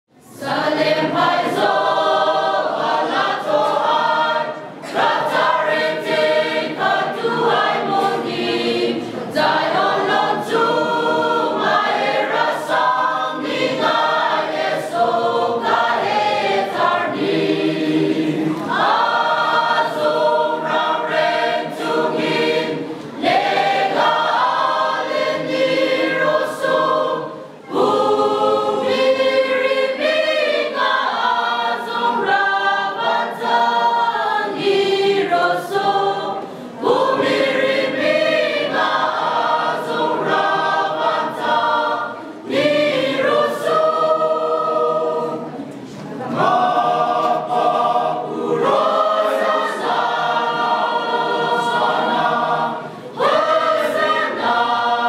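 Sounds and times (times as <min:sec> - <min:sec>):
mixed choir singing: 0:00.2 - 0:55.0.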